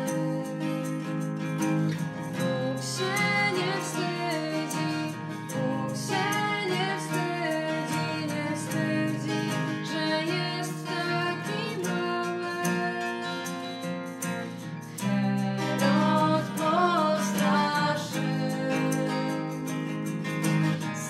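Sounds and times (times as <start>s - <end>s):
shaker: 0.0s - 21.0s
strummed acoustic guitars: 0.0s - 21.0s
group singing a carol: 2.8s - 11.9s.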